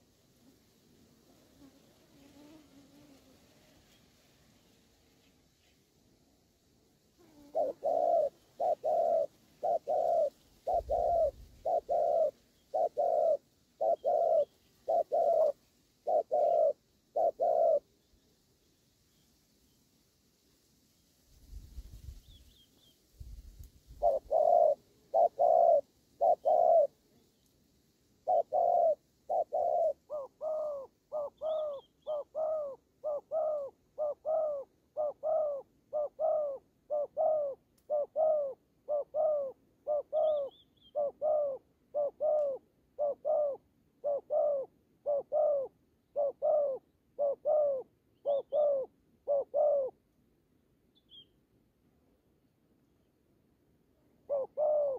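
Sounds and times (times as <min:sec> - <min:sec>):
doves cooing: 0:07.2 - 0:17.8, 0:24.0 - 0:27.0, 0:28.2 - 0:50.0, 0:54.2 - 0:54.9
small bird chirping: 0:07.3 - 0:18.2, 0:28.3 - 0:43.6, 0:44.2 - 0:49.9, 0:50.9 - 0:51.4.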